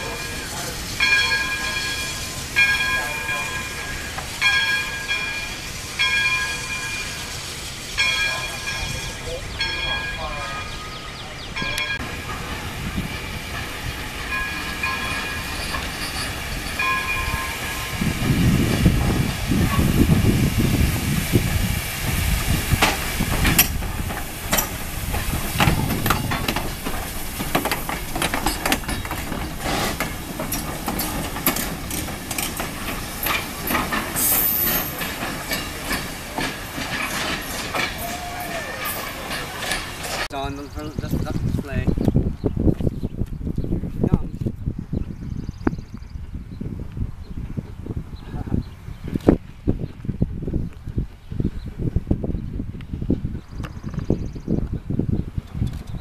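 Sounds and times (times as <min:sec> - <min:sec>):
level-crossing bell ringing: 0:00.0 - 0:07.3, 0:08.0 - 0:11.0
steam hissing: 0:00.0 - 0:10.2, 0:12.1 - 0:40.3
train wheels clanking over rail joints: 0:00.0 - 0:10.8, 0:11.6 - 0:20.6, 0:21.4 - 0:40.3
steam locomotive passing: 0:00.0 - 0:41.9.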